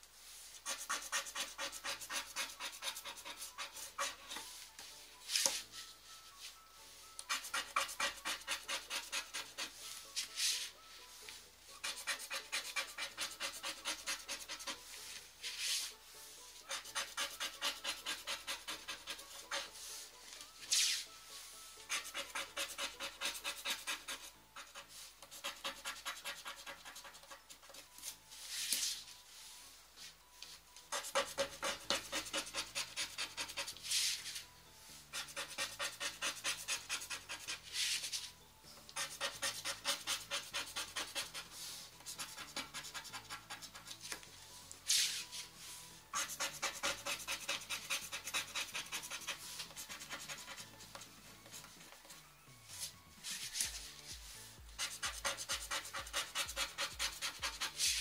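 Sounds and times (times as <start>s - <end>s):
quiet background music: 0.0s - 58.0s
scratch cards being scratched: 0.5s - 4.6s, 7.3s - 10.7s, 11.8s - 16.0s, 16.6s - 20.0s, 21.9s - 27.9s, 30.9s - 34.4s, 35.1s - 38.2s, 39.0s - 44.2s, 46.1s - 51.7s, 52.7s - 54.1s, 54.7s - 58.0s.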